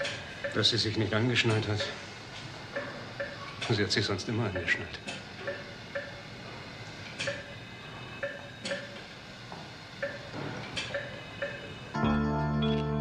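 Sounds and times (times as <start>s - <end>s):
patient monitor beeps: 0.0s - 13.0s
background music: 12.0s - 13.0s.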